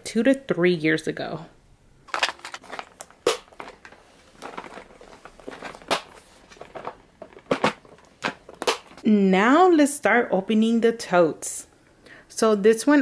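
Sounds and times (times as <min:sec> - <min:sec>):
plastic box clicks and knocks: 0:02.1 - 0:09.0.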